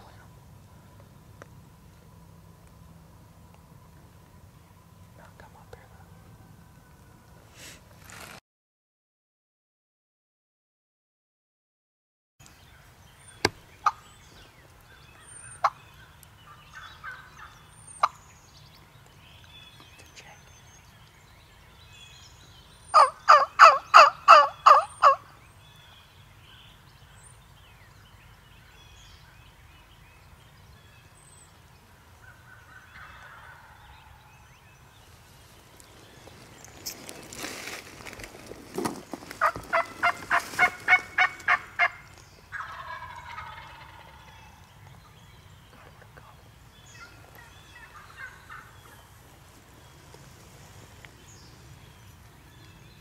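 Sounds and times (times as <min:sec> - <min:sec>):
rustling: 0:07.5 - 0:08.4, 0:35.0 - 0:41.6
wild turkey calling: 0:13.3 - 0:18.4, 0:22.9 - 0:25.4, 0:31.9 - 0:34.4, 0:39.2 - 0:52.7.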